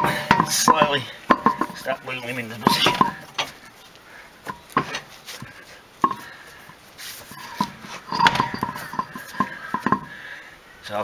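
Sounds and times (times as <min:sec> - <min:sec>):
metallic clinks and knocks: 0:00.0 - 0:01.9, 0:07.4 - 0:10.1.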